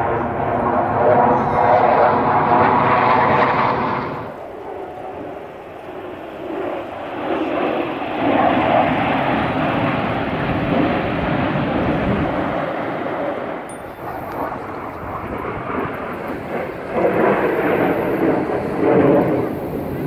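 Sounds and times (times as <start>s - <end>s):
jet engines flying past: 0.0s - 20.0s.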